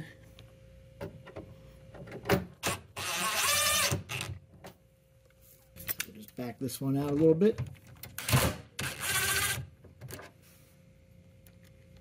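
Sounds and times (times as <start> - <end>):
drill motor whine: 3.0 - 4.3, 8.3 - 9.7.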